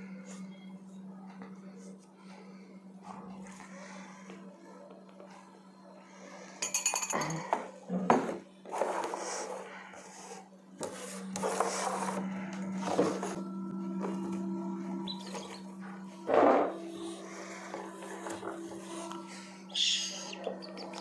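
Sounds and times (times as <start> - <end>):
steady low hum: 0.0 - 21.0
glass jars clinking: 6.6 - 7.7
rustling and scraping: 8.7 - 14.6.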